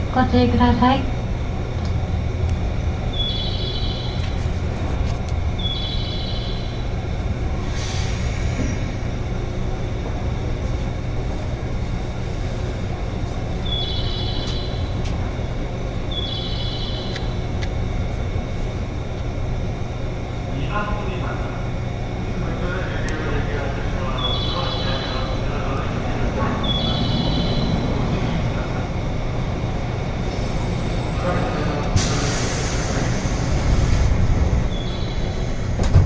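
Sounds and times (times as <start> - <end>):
train interior low hum: 0.0 - 36.0
burst of air: 7.6 - 8.9, 32.0 - 34.3.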